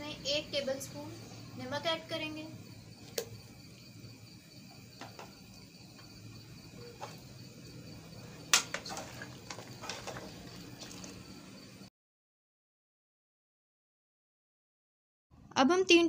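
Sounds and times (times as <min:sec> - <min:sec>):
metal spoon stirring soup: 0:08.2 - 0:11.2.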